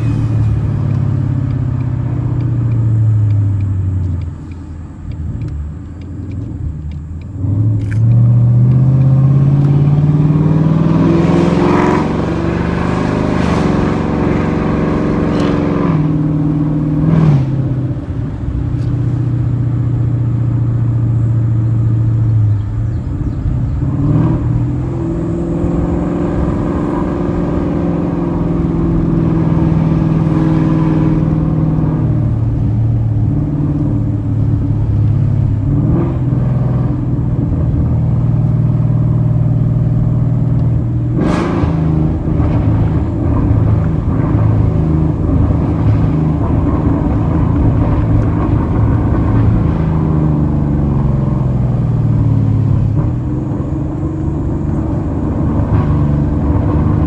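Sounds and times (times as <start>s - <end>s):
loud car exhaust revving: 7.3s - 18.0s, 19.0s - 57.0s.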